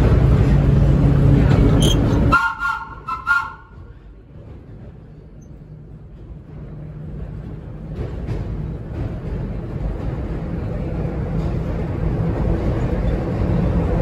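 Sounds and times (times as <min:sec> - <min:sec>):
train running rumble: 0:00.0 - 0:14.0
two-note train horn: 0:02.3 - 0:03.8.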